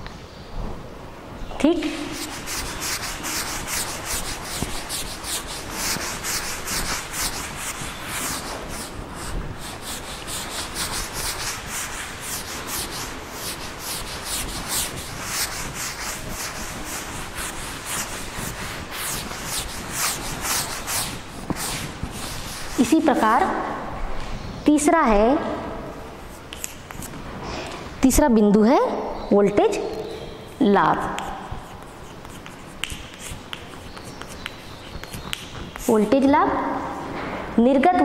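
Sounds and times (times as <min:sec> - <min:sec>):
pen scratching while writing: 0:02.1 - 0:23.0, 0:30.5 - 0:36.1.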